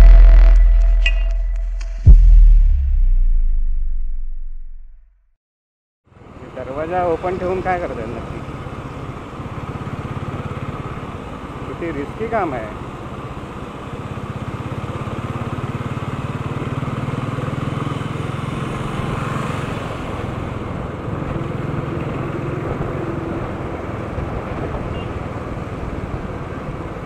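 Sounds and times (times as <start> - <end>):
road noise: 6.0 - 27.0
motorcycle engine running: 12.8 - 18.8.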